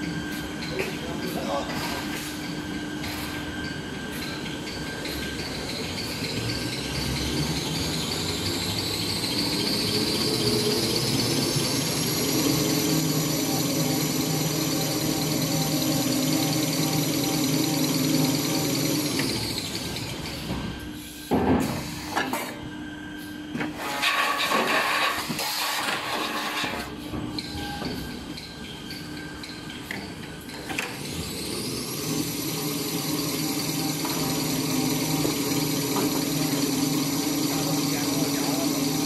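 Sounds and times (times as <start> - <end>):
paper rewinding machine whine: 7.8 - 20.5, 30.8 - 39.0.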